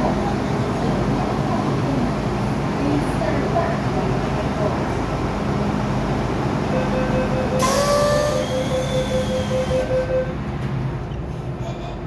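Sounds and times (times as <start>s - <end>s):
train hum: 0.0s - 12.0s
door-closing warning beeps: 6.8s - 10.4s.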